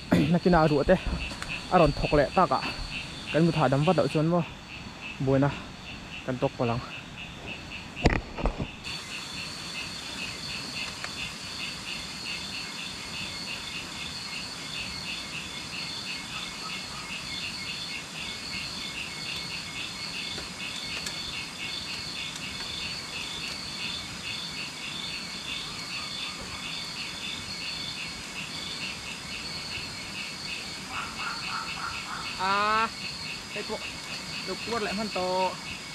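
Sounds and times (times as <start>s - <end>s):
insects chirping: 0.0s - 35.9s.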